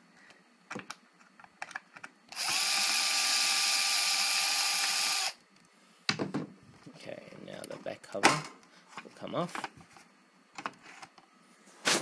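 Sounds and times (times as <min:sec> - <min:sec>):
electric screwdriver running: 0:02.3 - 0:05.4.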